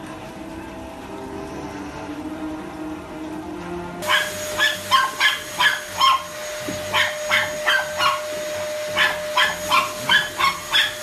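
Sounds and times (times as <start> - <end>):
dog barking: 4.0 - 11.0
vacuum cleaner motor whining: 4.0 - 11.0.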